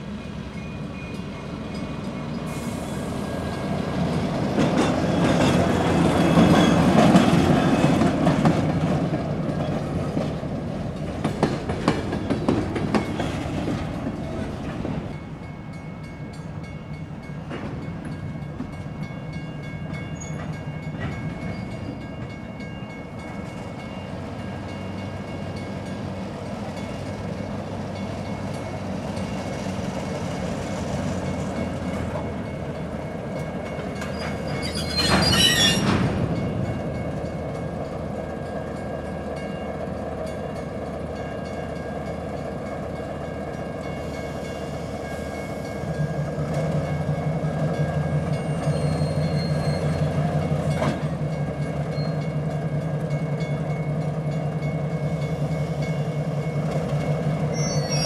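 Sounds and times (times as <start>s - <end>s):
diesel locomotive engine drone: 0.0s - 58.0s
train wheels squealing: 0.2s - 8.2s, 19.9s - 22.3s, 33.9s - 36.5s, 47.8s - 51.0s, 51.8s - 52.4s, 55.3s - 58.0s.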